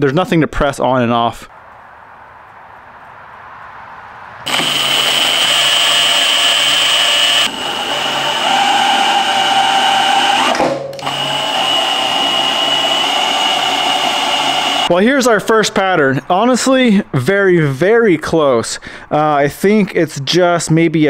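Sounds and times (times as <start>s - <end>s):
cordless drill whining: 4.5s - 14.9s.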